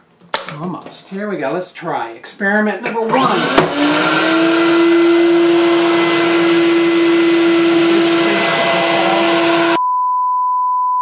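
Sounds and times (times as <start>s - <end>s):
vacuum motor whining: 3.0s - 9.8s.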